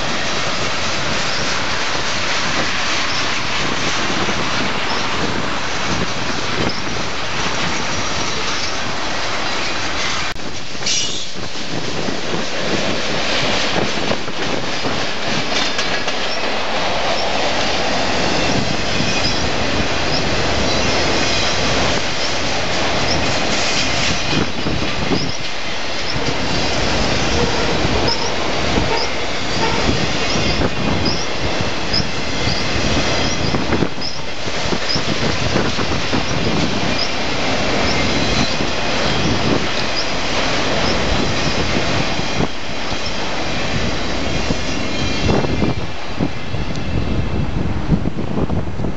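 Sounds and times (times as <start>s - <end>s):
wheels clacking over rail joints: 0.0s - 45.8s
freight train cars rumbling: 0.0s - 48.9s
high-pitched wheel squeals: 10.8s - 11.4s, 31.9s - 34.3s.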